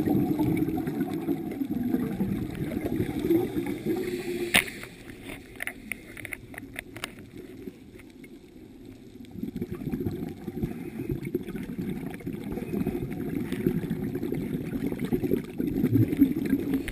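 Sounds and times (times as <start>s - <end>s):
underwater exhalation bubbles: 0.0s - 4.1s, 9.3s - 16.9s.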